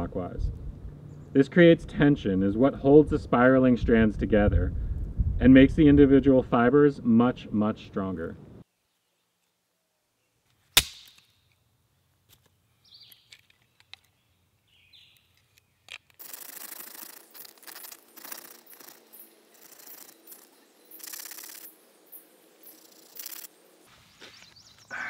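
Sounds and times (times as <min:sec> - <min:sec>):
small clicks of splinters: 0:13.1 - 0:14.2
bone grinding against stone: 0:16.0 - 0:20.5.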